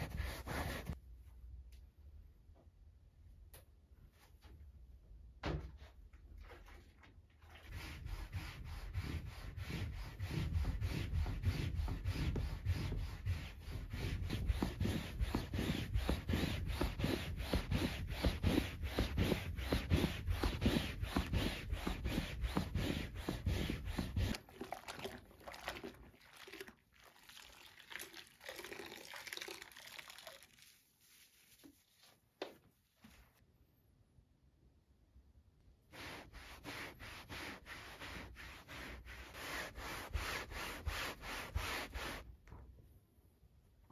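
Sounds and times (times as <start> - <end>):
sponge scrubbing fabric cushion: 7.4 - 27.6, 29.8 - 32.2, 35.9 - 42.3.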